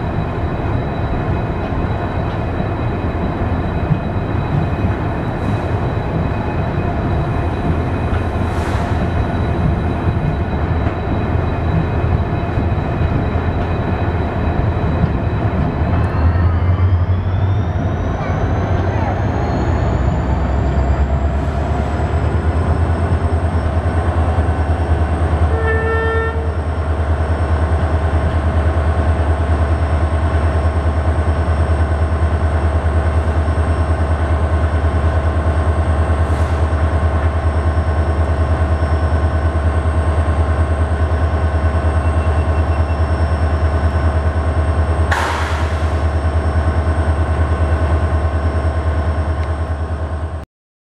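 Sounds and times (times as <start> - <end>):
train horn toot: 25.4 - 26.6.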